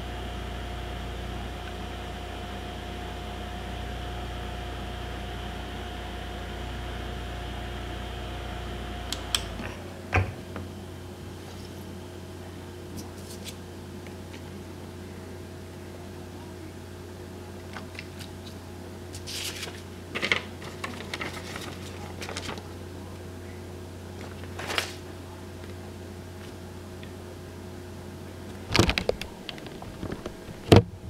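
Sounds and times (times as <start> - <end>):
steady low hum: 0.0 - 31.0
paper card rustle: 12.9 - 13.6, 17.8 - 22.8, 24.2 - 25.0
plastic sheet crinkling: 18.2 - 22.8, 24.2 - 25.0.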